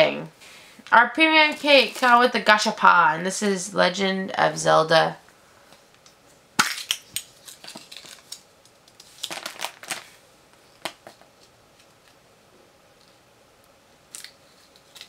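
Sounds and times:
small clicks and crinkling: 6.8 - 12.2, 13.0 - 15.0.

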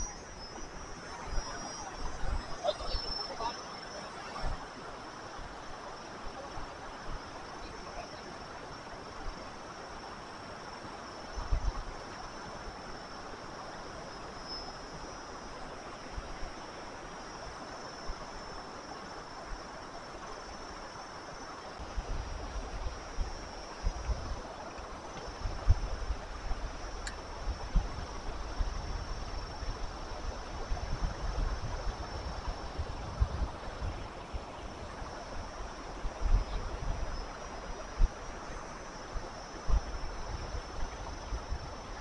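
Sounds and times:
wind buffeting microphone: 0.0 - 8.0, 21.8 - 42.0
fast-flowing water and surf: 0.0 - 42.0.

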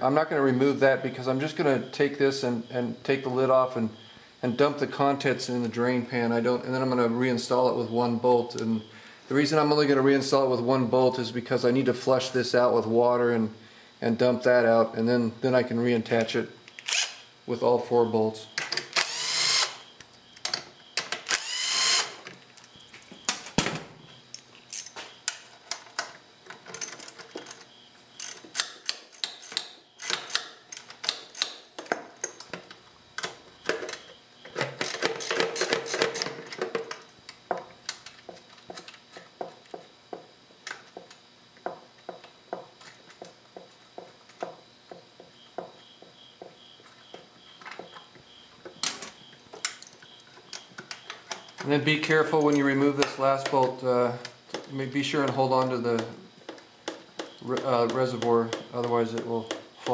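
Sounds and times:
cordless drill whirring: 19.0 - 19.8, 21.3 - 22.2.

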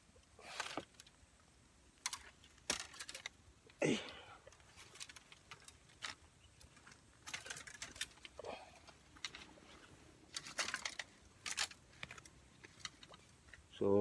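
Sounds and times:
bamboo stems and leaves rustling: 0.0 - 14.0.

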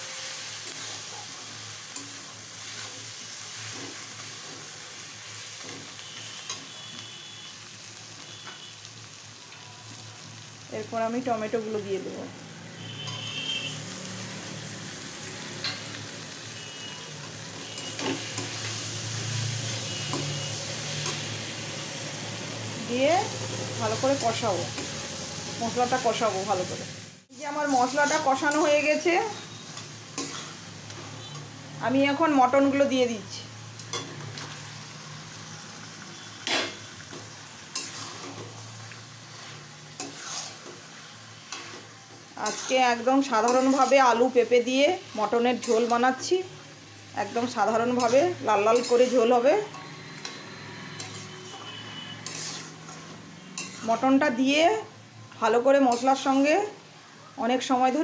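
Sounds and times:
steel spatula scraping wok: 0.0 - 7.5, 12.8 - 26.6, 27.5 - 32.9, 33.8 - 54.8, 55.8 - 56.7
vegetables sizzling in hot oil: 0.0 - 58.0
metal spatula scraping pan: 16.6 - 21.4, 27.7 - 31.6, 36.1 - 44.5, 47.6 - 54.0.

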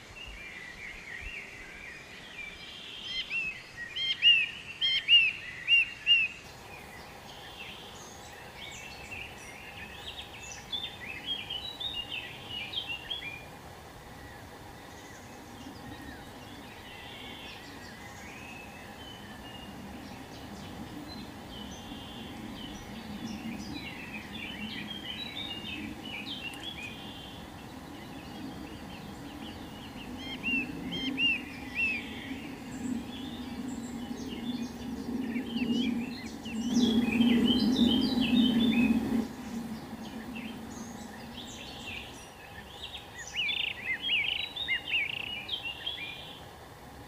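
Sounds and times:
small birds chirping: 0.0 - 46.6
low rumbling noise: 6.5 - 43.5.

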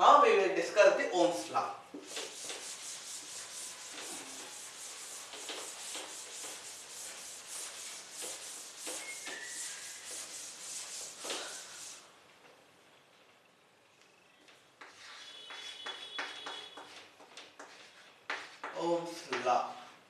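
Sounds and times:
scratchy rubbing strokes: 2.0 - 12.1, 14.8 - 18.7.

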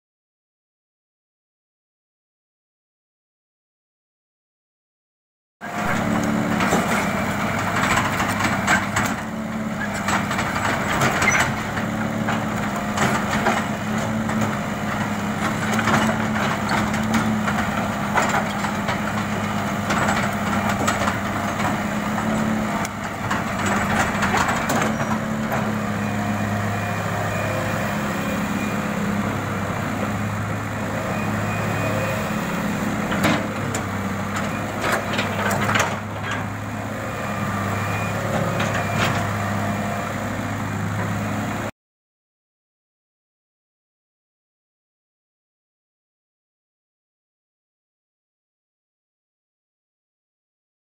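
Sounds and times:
excavator diesel engine running: 5.6 - 41.7.

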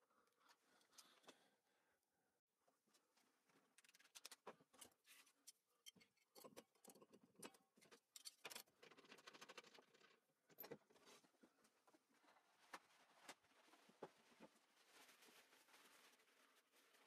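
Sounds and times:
faint clicks and taps of tools: 2.9 - 11.0.

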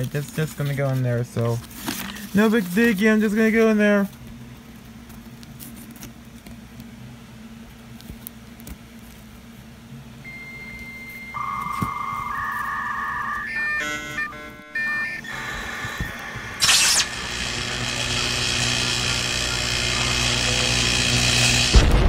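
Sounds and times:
electronic beep tones: 10.3 - 17.2.

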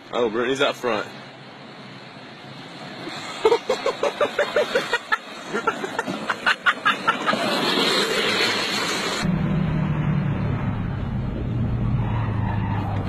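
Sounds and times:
steady rushing noise: 0.0 - 12.1
person laughing: 3.2 - 7.6.

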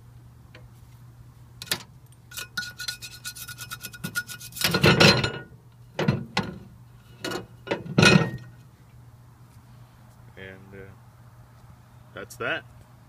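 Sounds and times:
wooden stick scraping glass: 2.3 - 4.9.

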